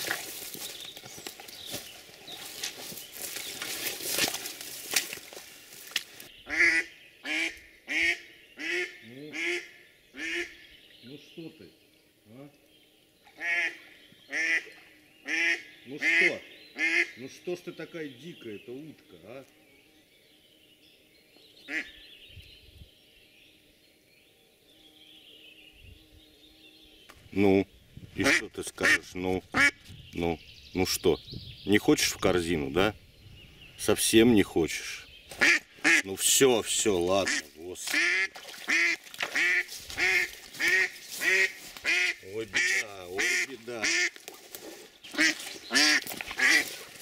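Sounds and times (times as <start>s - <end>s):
splashing in swamp water: 0.0s - 6.2s, 37.3s - 42.1s, 43.2s - 47.0s
distant songbirds: 0.0s - 47.0s
duck quacking: 6.5s - 10.6s, 13.4s - 14.7s, 15.3s - 17.2s, 28.2s - 29.8s, 35.4s - 36.1s, 37.2s - 44.2s, 45.1s - 46.8s
duck call: 38.0s - 44.1s.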